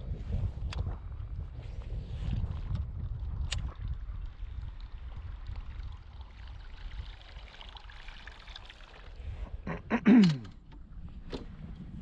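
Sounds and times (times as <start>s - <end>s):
wind rumble on microphone: 0.0s - 7.9s, 9.1s - 9.9s, 10.6s - 12.0s
water trickling and splashing: 2.1s - 9.6s.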